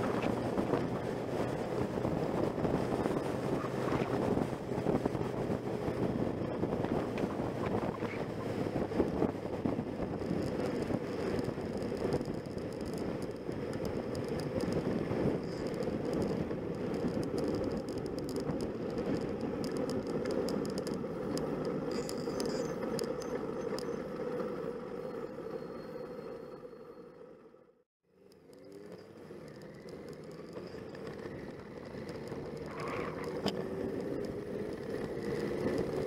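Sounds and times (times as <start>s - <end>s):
rushing wind: 0.0s - 24.8s
motorcycle engine running: 0.0s - 26.2s, 28.2s - 36.0s.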